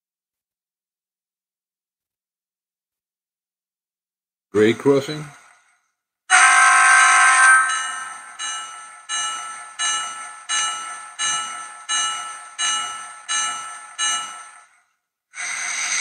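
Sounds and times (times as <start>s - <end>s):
crossing bell ringing: 6.3s - 14.8s.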